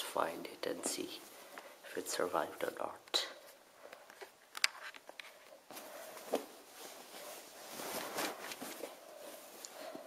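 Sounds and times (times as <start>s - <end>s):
blanket rustling: 5.5s - 10.0s.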